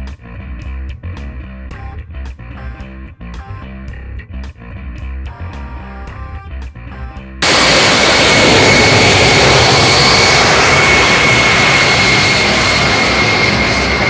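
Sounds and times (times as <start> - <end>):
turbojet engine whining roar: 7.4 - 14.0.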